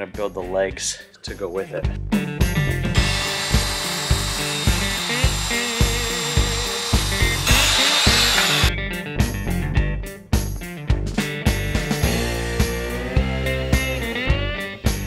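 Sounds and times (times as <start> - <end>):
background music with steady beat: 0.0 - 15.0
miter saw cutting wood board: 3.0 - 8.7.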